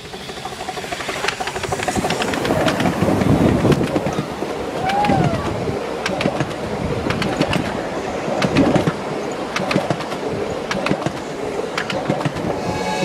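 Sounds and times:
wheels clicking over rail joints: 0.0 - 12.7
train carriages rolling past: 0.0 - 13.0.

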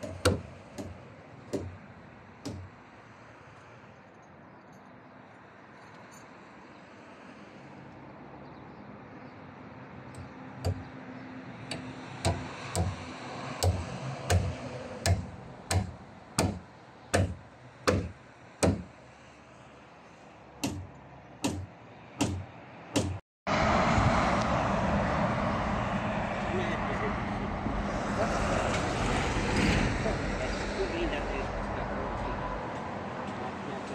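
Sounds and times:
loud rushing noise: 23.5 - 31.5.

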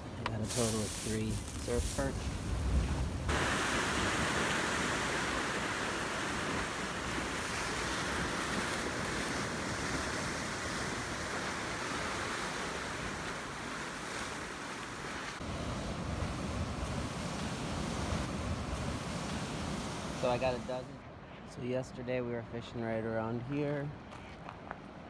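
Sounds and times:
ocean surf hissing: 0.0 - 21.0
wind: 0.0 - 25.0.

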